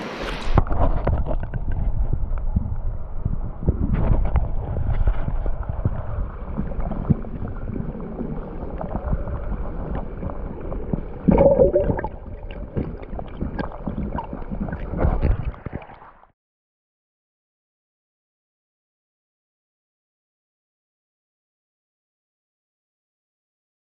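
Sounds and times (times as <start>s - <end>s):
water sloshing and gurgling: 0.0s - 16.4s
knocks underwater: 0.4s - 9.1s, 11.2s - 16.1s
bubbling burst: 11.3s - 13.0s.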